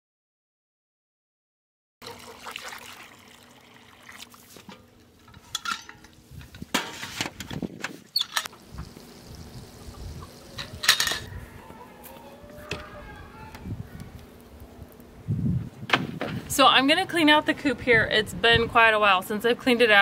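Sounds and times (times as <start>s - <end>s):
water pouring and trickling: 2.0s - 5.5s, 8.1s - 11.3s
metal parts clanking: 5.3s - 7.6s, 10.6s - 11.3s.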